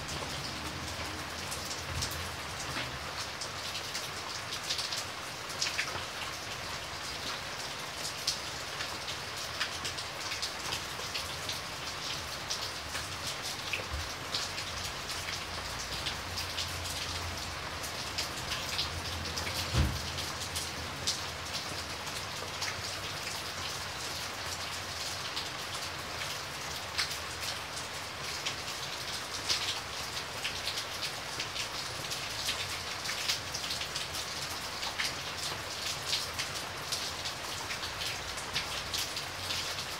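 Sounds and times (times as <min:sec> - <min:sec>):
rain drops ticking: 0:00.0 - 0:39.9
steady rain falling: 0:00.0 - 0:39.9
dull thump: 0:19.7 - 0:20.0.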